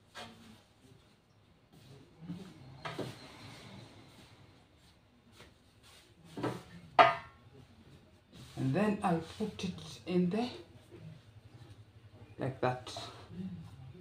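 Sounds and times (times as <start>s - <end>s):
hands rubbing bread dough: 0.0s - 6.8s, 7.6s - 10.1s.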